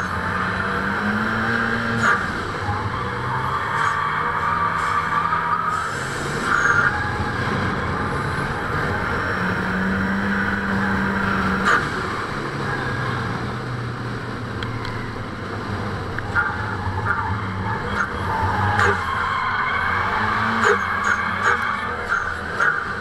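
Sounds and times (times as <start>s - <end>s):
car engine running: 0.0s - 23.0s.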